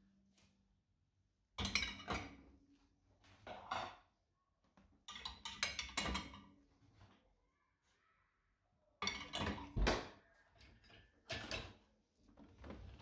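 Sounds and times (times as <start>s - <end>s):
household objects knocking and clattering: 4.8s - 7.1s, 9.0s - 11.8s.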